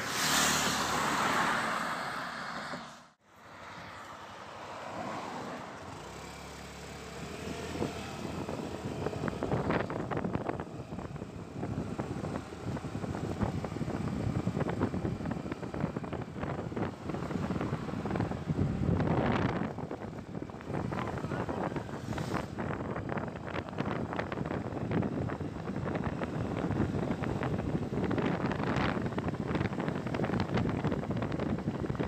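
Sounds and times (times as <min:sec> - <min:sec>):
motorcycle engine and road noise: 0:00.0 - 0:32.0
wind buffeting microphone: 0:07.4 - 0:32.0.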